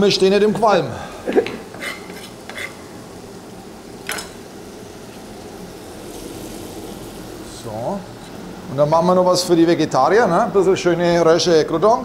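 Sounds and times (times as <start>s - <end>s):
bacon sizzling in a frying pan: 1.4s - 9.6s.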